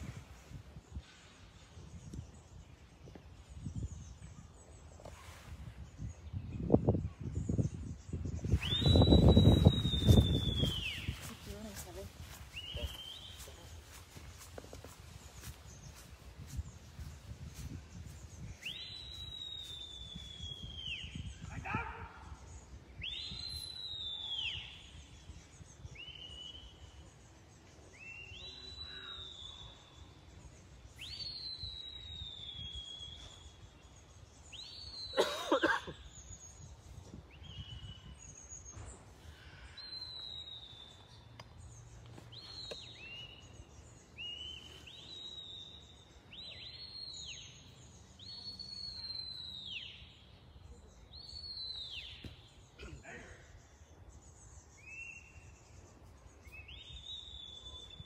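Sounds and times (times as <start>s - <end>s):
short high whistles: 8.5s - 11.1s.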